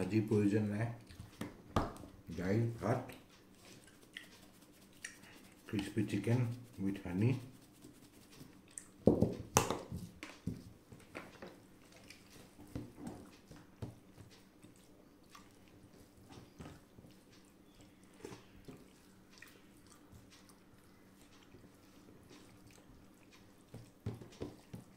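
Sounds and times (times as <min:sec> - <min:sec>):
chewing: 0:03.1 - 0:05.6, 0:08.5 - 0:09.0, 0:11.5 - 0:13.5, 0:14.3 - 0:24.0
fingers squishing food on plate: 0:03.1 - 0:09.0.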